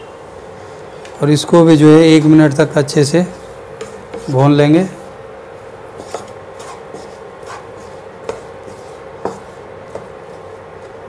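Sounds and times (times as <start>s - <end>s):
vegetables sauteing: 0.5s - 11.0s
wooden spatula scraping in pan: 3.2s - 11.0s.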